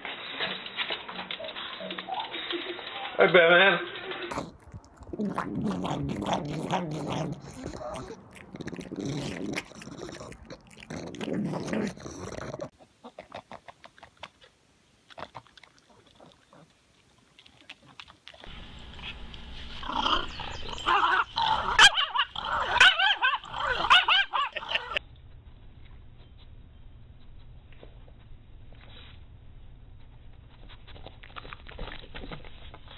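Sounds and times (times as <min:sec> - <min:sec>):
dog whimpering and yipping: 0:19.8 - 0:25.0.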